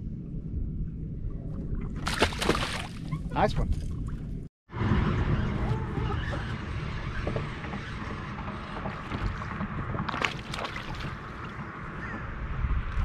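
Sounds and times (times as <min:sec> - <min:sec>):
wind rumbling on microphone: 0:00.0 - 0:13.0
water lapping at boat: 0:01.2 - 0:04.5, 0:05.6 - 0:12.3.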